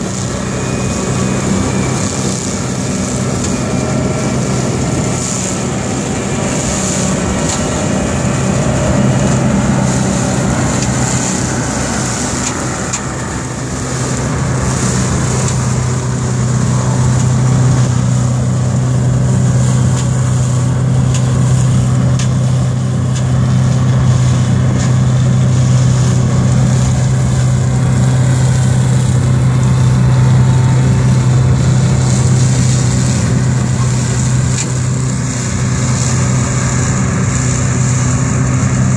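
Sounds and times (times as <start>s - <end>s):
tractor and mower running: 0.0s - 38.9s.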